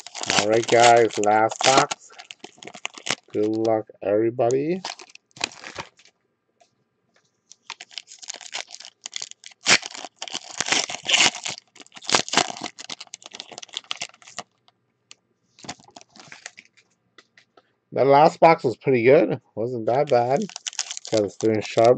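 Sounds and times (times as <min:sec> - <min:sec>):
foil wrapper crinkling and tearing: 0:00.0 - 0:03.7, 0:04.4 - 0:06.1, 0:07.5 - 0:14.6, 0:15.6 - 0:16.8, 0:20.0 - 0:21.9.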